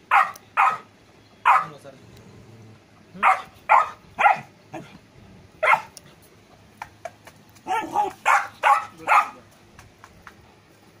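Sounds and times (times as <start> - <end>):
puppy barking: 0.1 - 1.8, 3.2 - 4.9, 5.6 - 6.0, 7.6 - 9.4.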